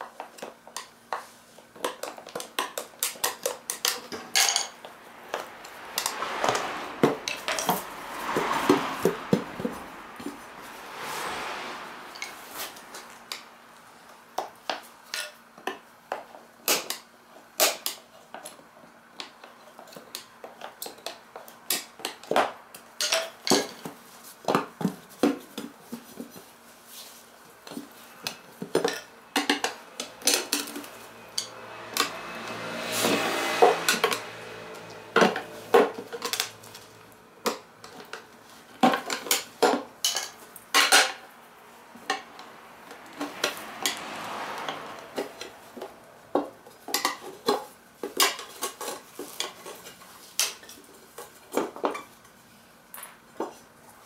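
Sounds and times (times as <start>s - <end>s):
tyre rubbing scrape: 6.2s - 13.2s.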